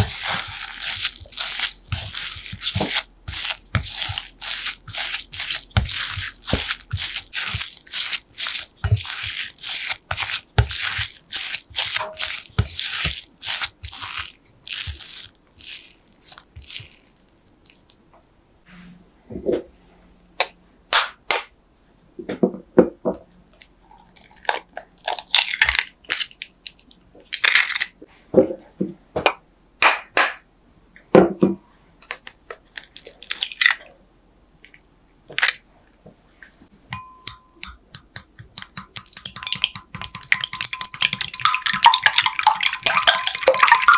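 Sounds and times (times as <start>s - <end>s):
fork beating eggs against glass: 0.0s - 15.0s, 36.9s - 43.9s
eggs cracking: 0.0s - 17.9s, 37.6s - 43.9s.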